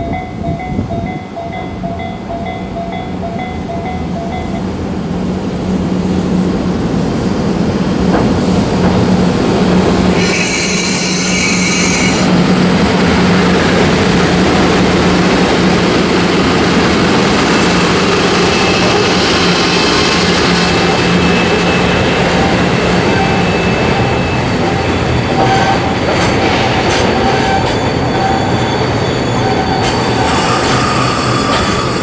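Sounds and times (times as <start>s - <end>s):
train wheels rumbling on rail: 0.0s - 32.0s
high screech: 10.2s - 12.3s.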